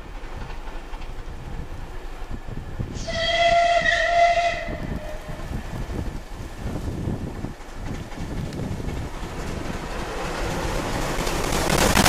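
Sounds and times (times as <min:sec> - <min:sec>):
train rumble: 0:00.0 - 0:12.0
steam locomotive whistle: 0:02.9 - 0:05.5.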